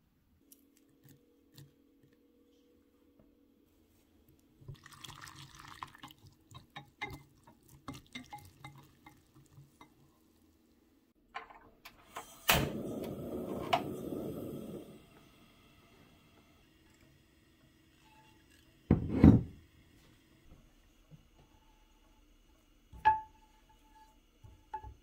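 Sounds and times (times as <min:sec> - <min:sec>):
whisk beating eggs in glass bowl: 0:05.2 - 0:10.0
gas flame hissing: 0:12.1 - 0:17.7.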